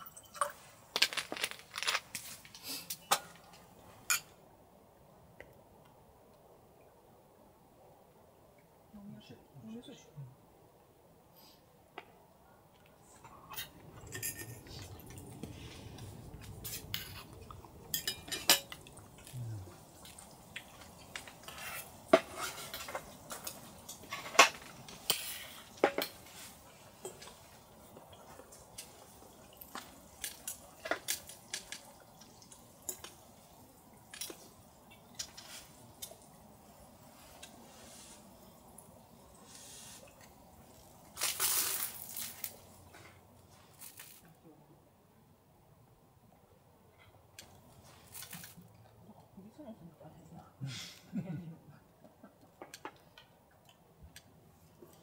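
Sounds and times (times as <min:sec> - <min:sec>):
utensils clinking against dishes: 0:13.5 - 0:15.2, 0:16.6 - 0:19.0.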